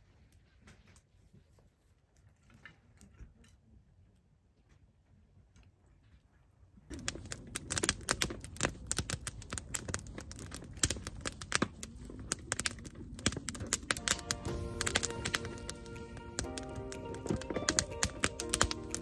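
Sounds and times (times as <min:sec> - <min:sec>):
firewood crackling and popping: 0:06.9 - 0:19.0
music: 0:14.0 - 0:19.0.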